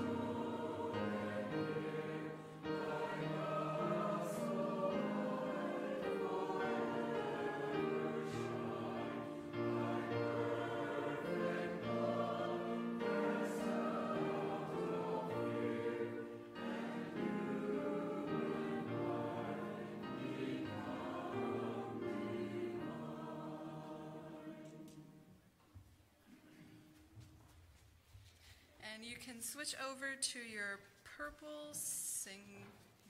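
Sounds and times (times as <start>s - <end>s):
group singing a hymn in harmony: 0.0s - 25.3s.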